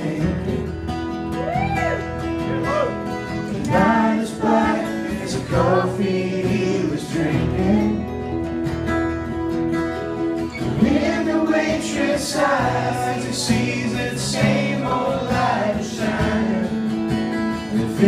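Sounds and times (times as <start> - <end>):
acoustic guitars strumming: 0.0 - 18.0
person singing: 3.5 - 8.2.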